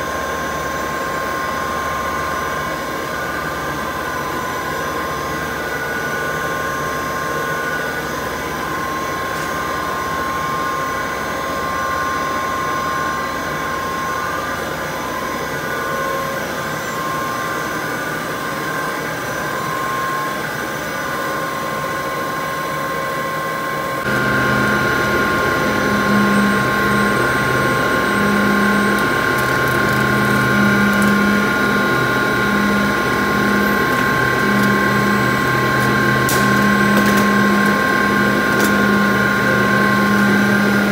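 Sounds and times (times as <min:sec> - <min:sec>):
machinery running with whining tones: 0:00.0 - 0:40.9
pulsing low hum: 0:24.1 - 0:40.9.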